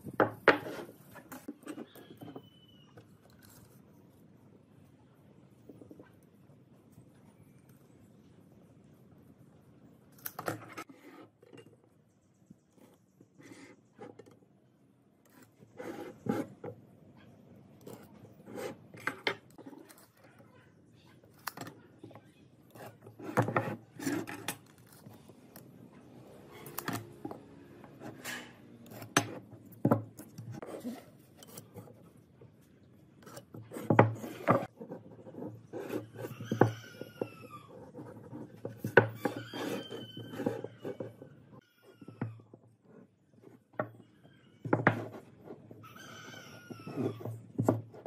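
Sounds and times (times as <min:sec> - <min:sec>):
ruler scraping across wood: 0:00.4 - 0:02.4, 0:15.3 - 0:16.7, 0:17.9 - 0:19.4, 0:26.7 - 0:29.6
high falling squeaks: 0:01.8 - 0:03.0, 0:36.0 - 0:37.9, 0:39.1 - 0:42.5, 0:45.8 - 0:47.4.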